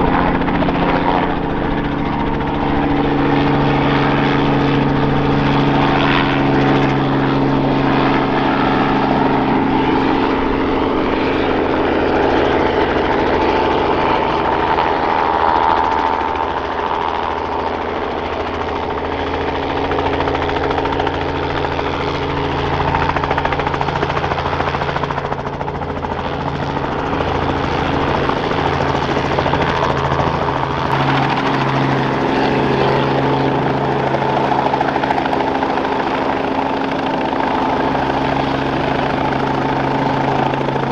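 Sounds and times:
helicopter engine and rotor: 0:00.0 - 0:40.9.

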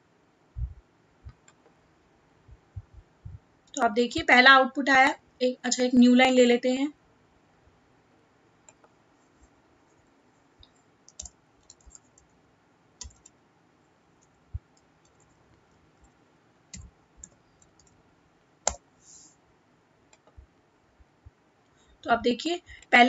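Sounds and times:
computer mouse and keyboard clicks: 0:08.6 - 0:09.0, 0:10.6 - 0:12.3, 0:13.0 - 0:13.4, 0:14.2 - 0:15.4, 0:16.0 - 0:18.0, 0:18.6 - 0:18.8.

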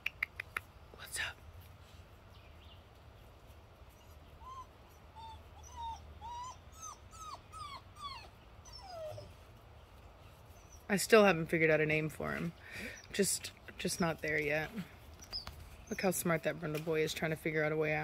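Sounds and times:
puppy whining: 0:03.9 - 0:09.6.

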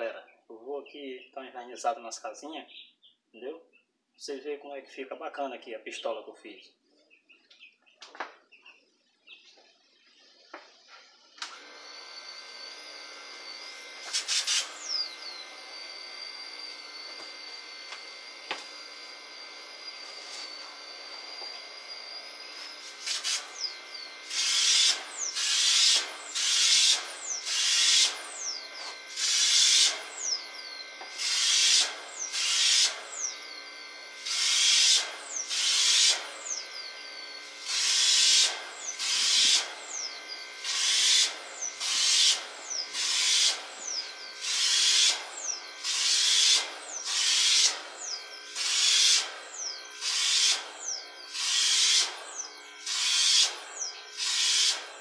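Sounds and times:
air compressor hum: 0:10.5 - 0:55.0
spray gun hissing bursts: 0:13.7 - 0:15.0, 0:22.0 - 0:28.4, 0:29.1 - 0:30.4, 0:31.1 - 0:33.3, 0:34.1 - 0:36.6, 0:37.4 - 0:40.0, 0:40.6 - 0:55.0.

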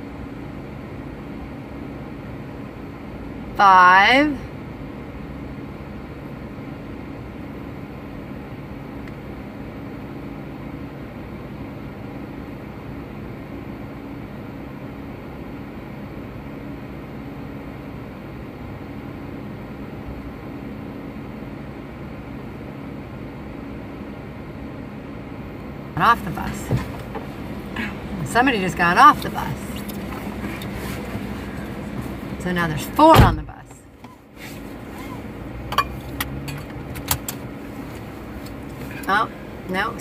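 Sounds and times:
vehicle engine idling: 0:24.8 - 0:40.0.

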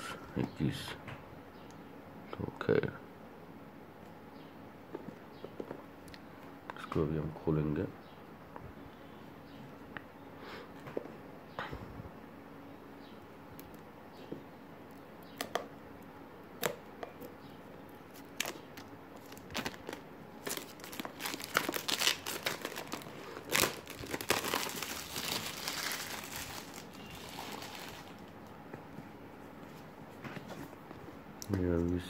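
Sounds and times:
plastic wrap crinkling: 0:18.1 - 0:28.6.

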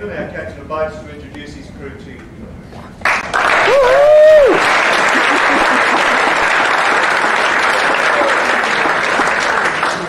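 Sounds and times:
audience applauding: 0:03.0 - 0:10.0
person whooping: 0:03.6 - 0:04.7.

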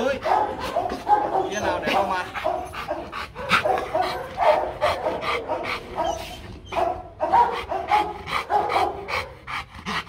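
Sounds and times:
dog panting: 0:00.0 - 0:10.0
dog whining: 0:05.9 - 0:07.0.

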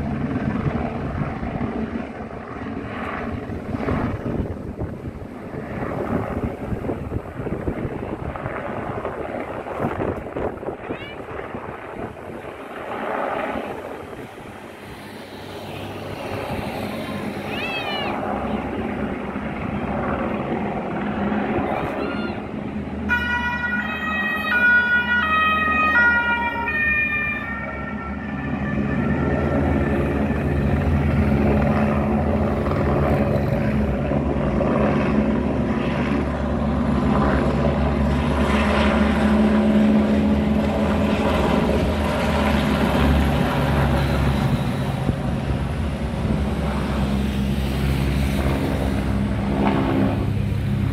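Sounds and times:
low engine drone of passing vehicles: 0:00.0 - 0:50.9
traffic noise: 0:13.4 - 0:50.9
two-tone emergency siren: 0:23.0 - 0:31.1.

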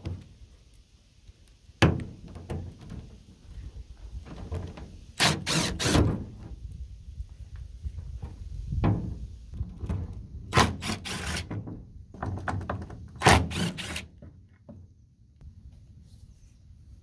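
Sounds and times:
cordless driver rattling bursts: 0:05.2 - 0:06.1, 0:13.2 - 0:14.1.

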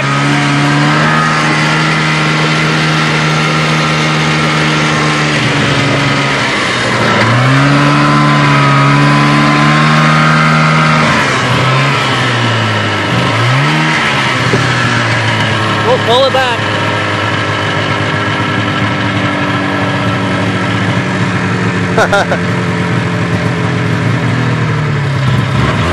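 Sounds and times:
snowmobile engine running: 0:00.0 - 0:25.9.

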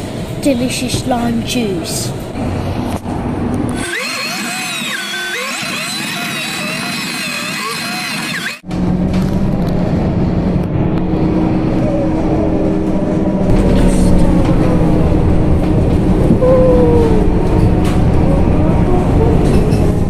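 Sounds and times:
bus engine and road rumble: 0:00.0 - 0:03.8, 0:08.6 - 0:20.0.

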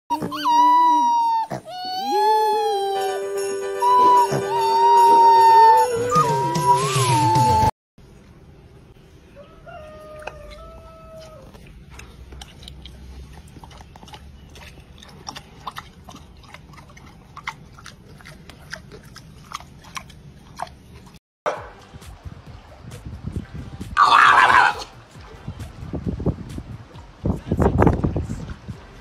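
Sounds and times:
pig chewing and crunching: 0:09.8 - 0:21.2.

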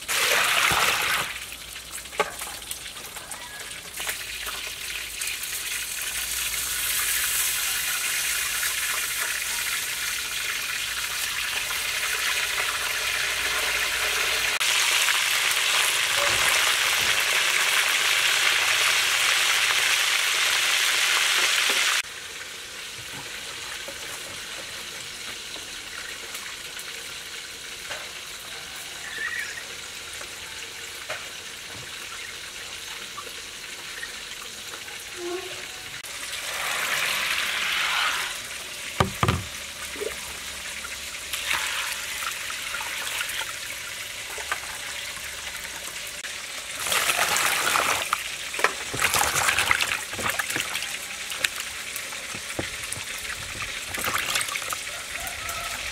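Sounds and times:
fish sizzling in hot oil: 0:00.0 - 0:55.9
water splashing in a bowl: 0:46.7 - 0:55.3.

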